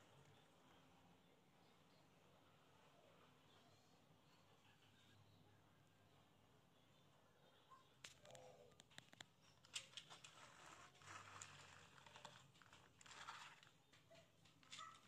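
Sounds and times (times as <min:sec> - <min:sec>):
toy truck clicks and rustles: 0:08.0 - 0:15.0.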